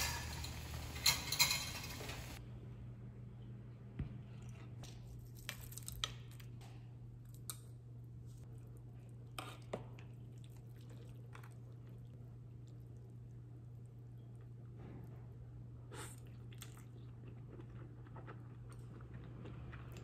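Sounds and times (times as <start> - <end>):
pot and utensils clinking: 0.0 - 2.4.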